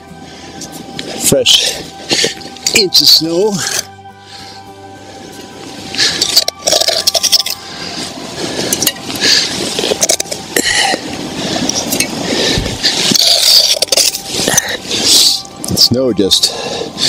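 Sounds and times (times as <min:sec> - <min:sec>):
crunching scrapes of snow: 0:07.7 - 0:15.4.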